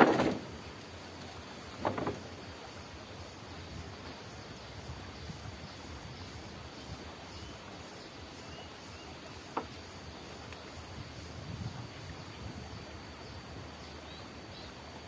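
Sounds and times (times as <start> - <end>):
steady insect tone: 0.0 - 15.0
wind noise on microphone: 3.6 - 7.6, 10.8 - 13.7.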